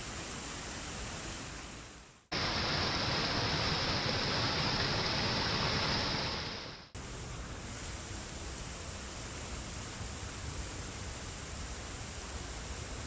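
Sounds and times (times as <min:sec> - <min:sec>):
soft steady hiss: 0:00.0 - 0:13.0
water pouring over a ledge: 0:02.3 - 0:06.8.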